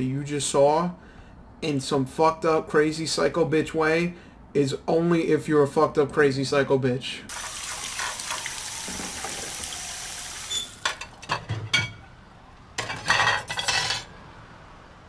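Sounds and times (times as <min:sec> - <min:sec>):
tap water running into sink: 0:07.3 - 0:11.0
plates and cutlery clinking: 0:10.8 - 0:12.0, 0:12.8 - 0:14.1
dishes clattering: 0:10.8 - 0:12.1, 0:12.8 - 0:14.1.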